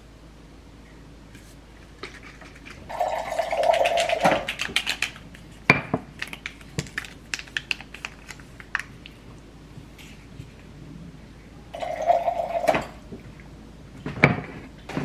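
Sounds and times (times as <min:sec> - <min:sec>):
water dispenser filling a glass: 0:02.9 - 0:04.4, 0:11.8 - 0:13.0.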